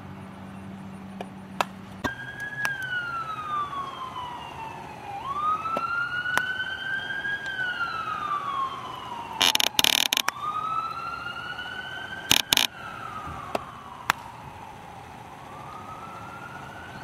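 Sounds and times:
siren wailing: 2.0 - 17.0
sharp cracks: 9.3 - 10.5, 12.2 - 12.8, 13.4 - 14.4.

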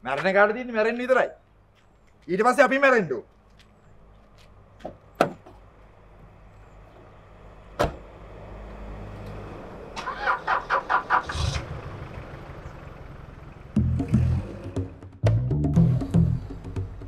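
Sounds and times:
car door shutting: 7.8 - 8.0
car engine cranking and starting: 9.0 - 15.2.

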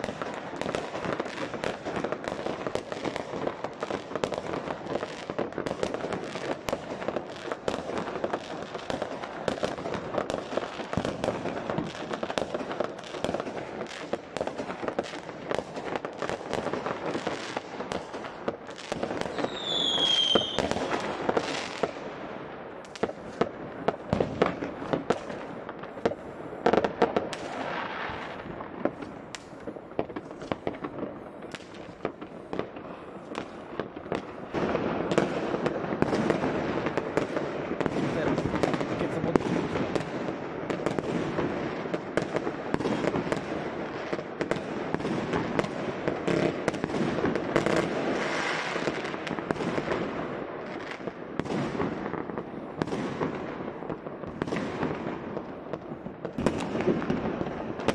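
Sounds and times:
fireworks crackling and banging: 0.0 - 57.9
falling firework whistle: 19.2 - 21.8.

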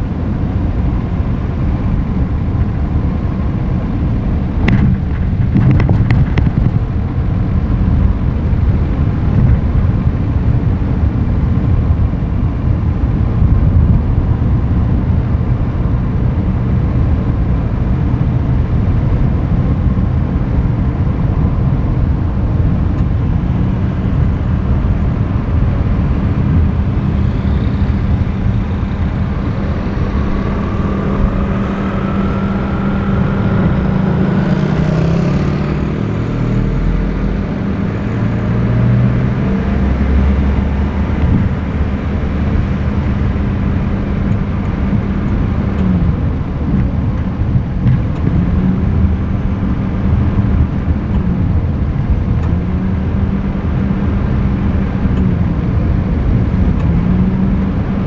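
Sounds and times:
engine hum: 0.0 - 58.0
road and wind noise: 0.0 - 58.0
engine note rising in pitch: 23.4 - 46.5.

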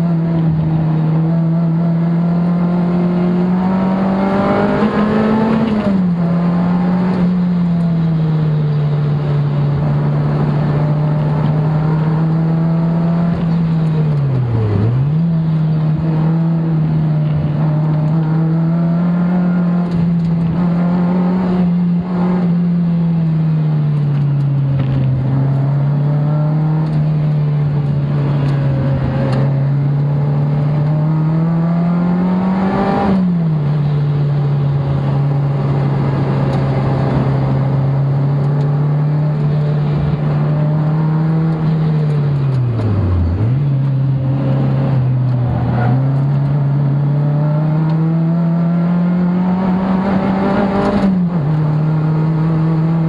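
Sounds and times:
car engine droning in cabin: 0.0 - 53.0.

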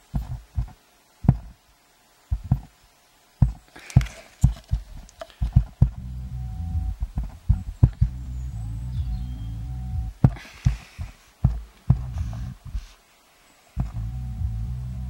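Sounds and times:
deep bass thumps: 0.0 - 1.6, 2.3 - 2.7, 3.4 - 3.6, 4.4 - 12.8, 13.8 - 15.0
low bass drone: 5.8 - 10.2, 11.9 - 12.6, 13.8 - 15.0
brief hiss: 12.1 - 13.8.

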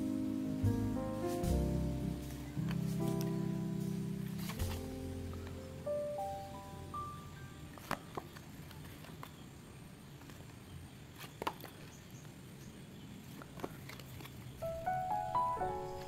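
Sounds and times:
background music: 0.0 - 8.0, 14.6 - 16.0
paper cards shuffled: 4.2 - 5.6, 7.7 - 9.4, 13.3 - 14.6
soft clicks of cards: 4.2 - 5.7, 7.7 - 9.4.

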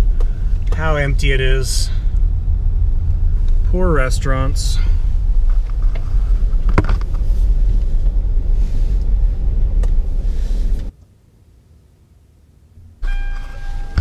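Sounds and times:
low rumble inside a car: 0.0 - 14.0.

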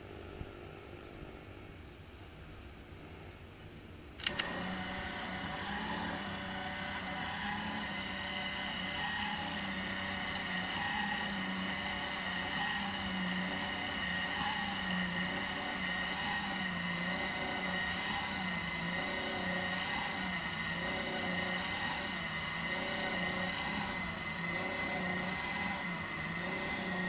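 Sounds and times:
sharp clicks: 4.2 - 4.7
small electric motor whining: 4.2 - 27.0.

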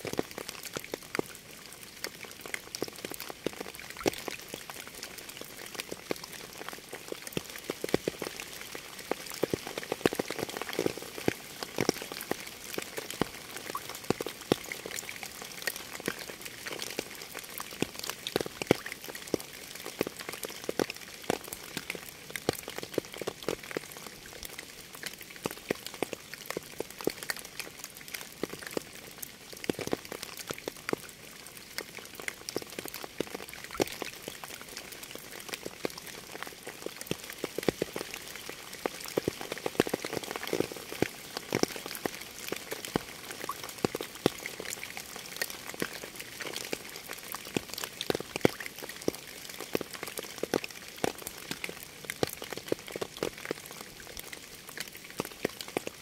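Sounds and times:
raindrops tapping on surface: 2.5 - 29.0, 29.6 - 31.1, 31.8 - 56.0.

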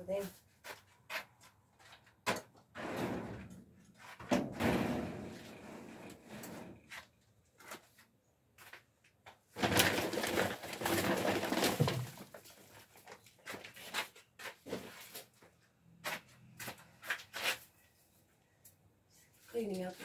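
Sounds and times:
plastic bags rustling: 9.6 - 13.7.

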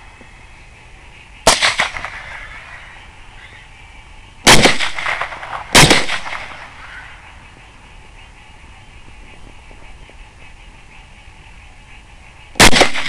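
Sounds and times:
rifle shots with rolling echo: 1.4 - 2.8, 4.4 - 7.1, 12.6 - 13.0.

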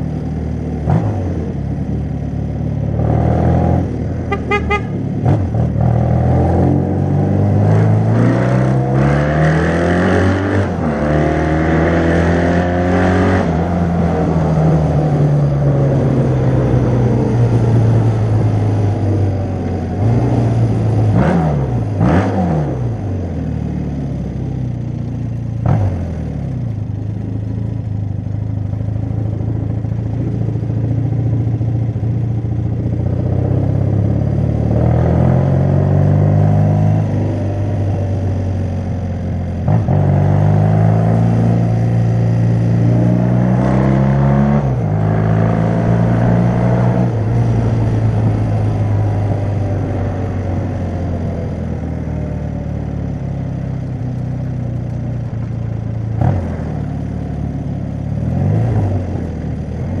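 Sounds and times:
motorcycle engine accelerating: 0.0 - 60.0.

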